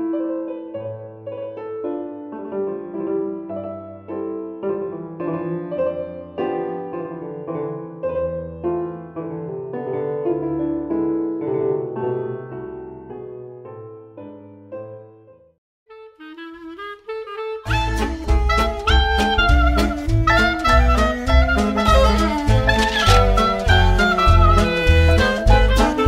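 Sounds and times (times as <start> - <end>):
digital piano playing chords: 17.6 - 26.0.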